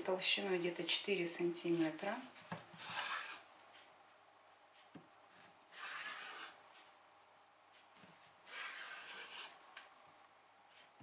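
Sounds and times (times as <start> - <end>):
knife scraping cutting board: 2.8 - 3.4, 5.7 - 6.6, 8.5 - 9.6.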